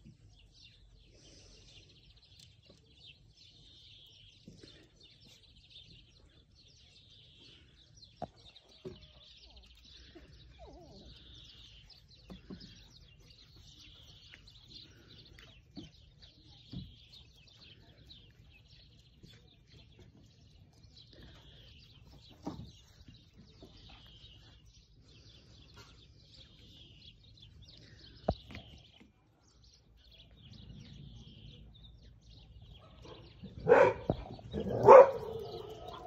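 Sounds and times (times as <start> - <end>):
faint bird chirping: 0.0 - 36.0
puppy barking: 32.8 - 36.0.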